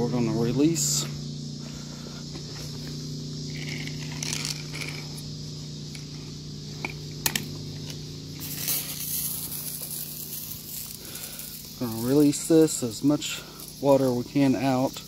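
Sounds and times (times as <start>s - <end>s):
pump humming: 0.0s - 15.0s
water spraying from nozzle: 8.4s - 15.0s.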